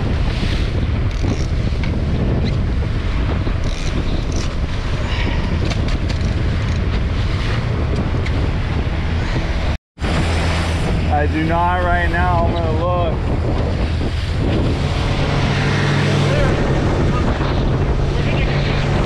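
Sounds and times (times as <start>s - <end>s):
water rushing along hull: 0.0s - 19.0s
wind buffeting microphone: 0.0s - 19.0s
outboard motor running: 12.3s - 19.0s.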